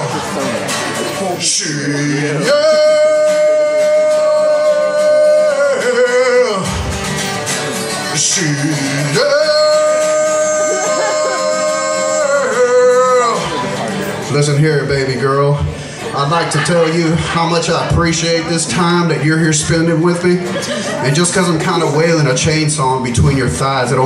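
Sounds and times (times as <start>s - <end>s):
guitar: 0.0s - 24.0s
man singing high wailing notes: 1.4s - 6.8s, 8.1s - 13.8s.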